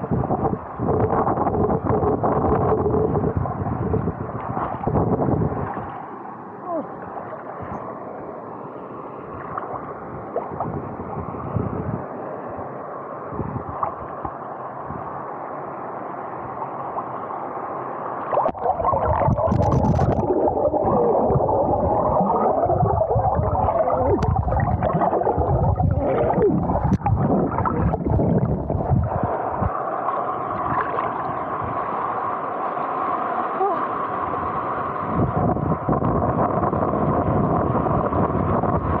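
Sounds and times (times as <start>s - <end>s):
muffled water gurgling and sloshing: 0.0s - 39.0s
water splashing: 18.2s - 31.3s.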